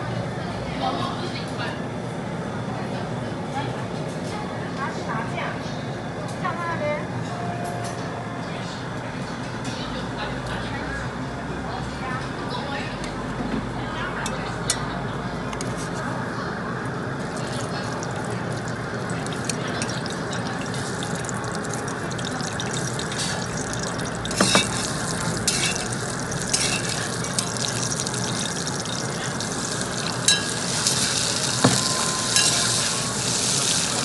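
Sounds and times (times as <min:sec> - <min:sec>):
food sizzling in a hot pot: 0:17.3 - 0:34.0.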